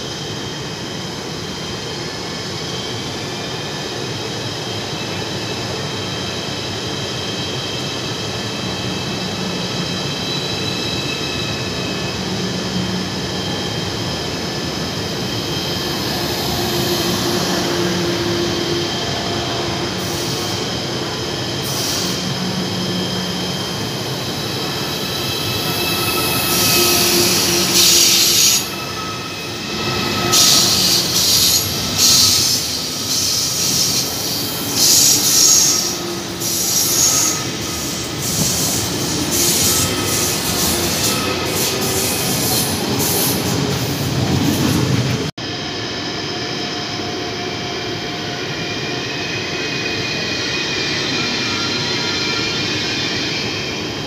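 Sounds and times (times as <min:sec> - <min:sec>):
train rolling past: 0:00.0 - 0:54.0
high-pitched wheel squeals: 0:15.3 - 0:43.8.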